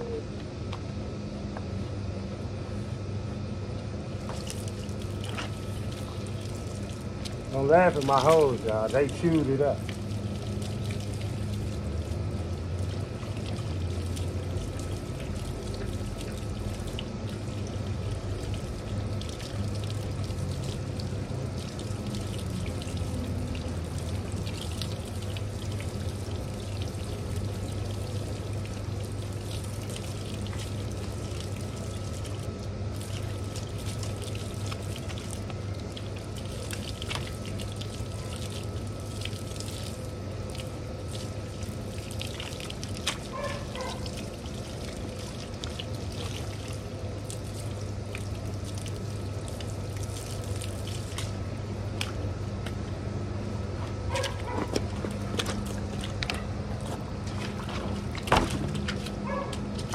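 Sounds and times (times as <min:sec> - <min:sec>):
steady low hum: 0:00.0 - 0:59.9
water pouring from hose: 0:04.2 - 0:52.2.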